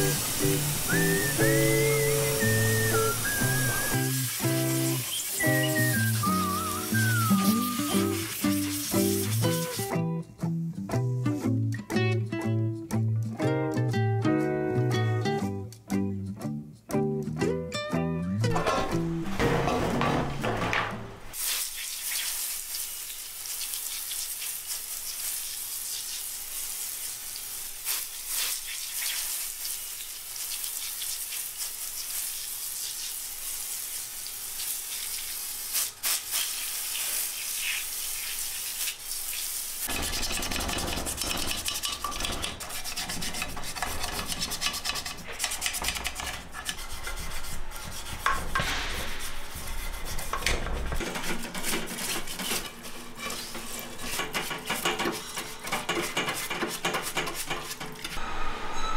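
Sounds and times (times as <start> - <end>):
spray jet hissing: 0.0 - 9.9
brush scrubbing metal parts: 0.1 - 9.9, 34.7 - 58.2
knocks against metal: 18.5 - 21.1, 48.4 - 49.4.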